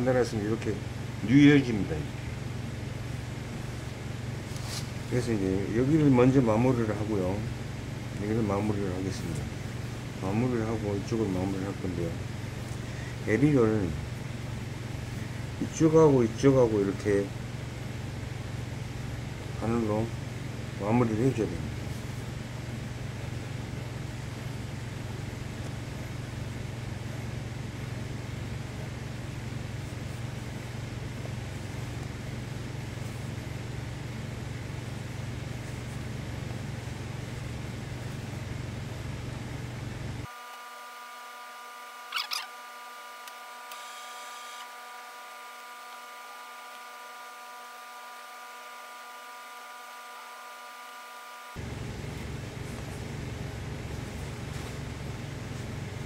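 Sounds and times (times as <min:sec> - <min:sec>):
low machine hum: 0:00.0 - 0:56.0
short rising squeak: 0:42.0 - 0:42.7.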